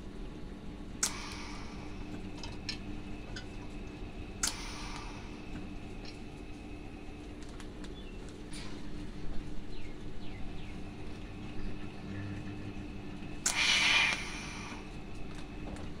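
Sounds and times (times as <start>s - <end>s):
steady welder hum: 0.0s - 16.0s
welding arc crack and hiss: 13.4s - 15.4s.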